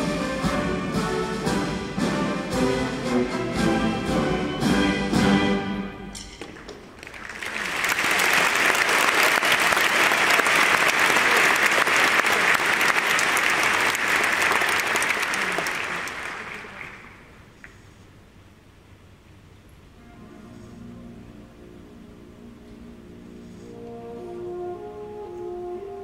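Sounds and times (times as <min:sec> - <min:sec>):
large audience applauding: 0:06.5 - 0:17.4.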